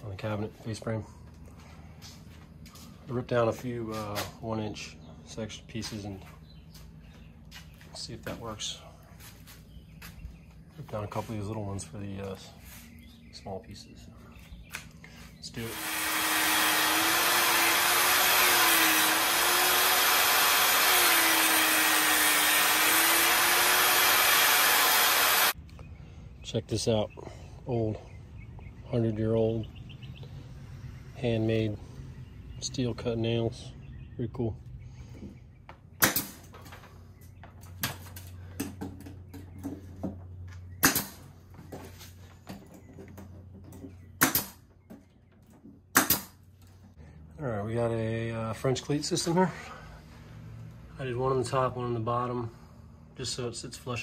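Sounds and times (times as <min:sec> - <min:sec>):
saw cutting wood: 0:15.6 - 0:25.6
table saw motor whine: 0:15.6 - 0:25.6
nail gun firing: 0:15.7 - 0:25.6, 0:36.0 - 0:36.4, 0:40.8 - 0:41.2, 0:44.2 - 0:44.6, 0:45.9 - 0:46.4.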